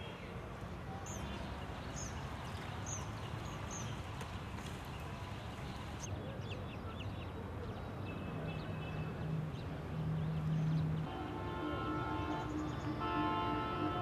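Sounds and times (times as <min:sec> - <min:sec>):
outdoor background noise: 0:00.0 - 0:14.0.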